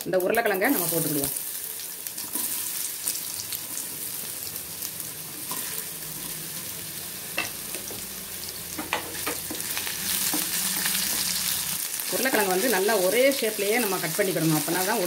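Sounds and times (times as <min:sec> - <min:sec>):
potatoes sizzling in oil: 0:00.0 - 0:15.0.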